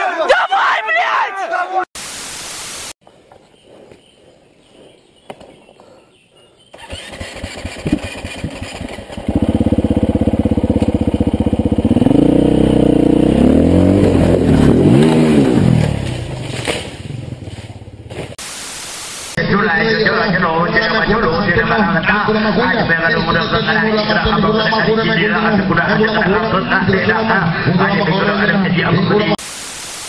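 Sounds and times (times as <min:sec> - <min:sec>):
dirt bike engine revving: 0:06.8 - 0:18.3.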